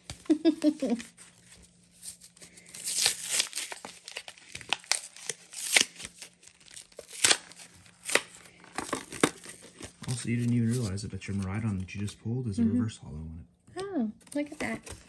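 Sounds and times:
foil wrapper tearing and crinkling: 0.9 - 11.8.

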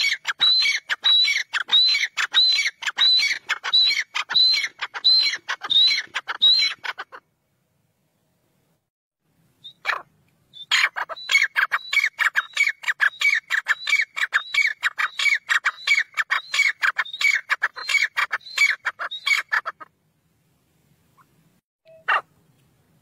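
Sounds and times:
francolin calling: 0.0 - 7.2, 9.6 - 19.8.

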